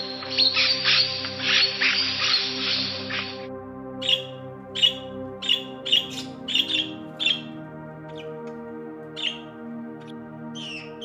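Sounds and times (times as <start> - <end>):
soft background music: 0.0 - 11.0
parrot chirping: 4.0 - 7.5, 9.2 - 9.5, 10.6 - 11.0.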